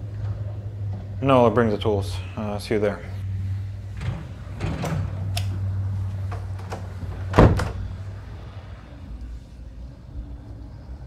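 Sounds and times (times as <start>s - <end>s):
low steady hum: 0.0s - 11.0s
door thudding shut: 7.1s - 7.9s.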